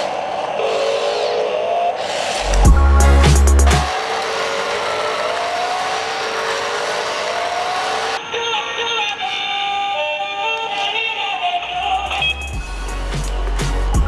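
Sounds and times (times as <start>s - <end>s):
electronic background music: 1.9s - 8.2s, 11.3s - 14.0s
toy electric motor whining: 3.9s - 12.6s.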